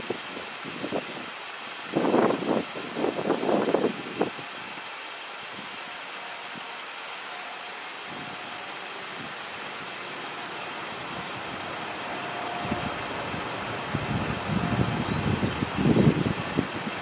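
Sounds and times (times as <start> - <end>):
traffic and engine noise: 3.4 - 17.0
faint steady tone: 5.6 - 17.0.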